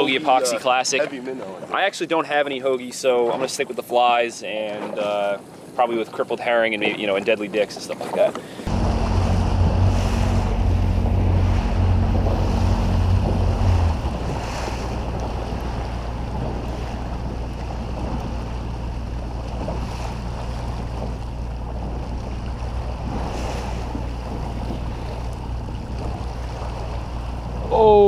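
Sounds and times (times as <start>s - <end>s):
small waves lapping: 0.0s - 28.0s
wind buffeting microphone: 8.2s - 28.0s
boat motor idling: 8.6s - 28.0s.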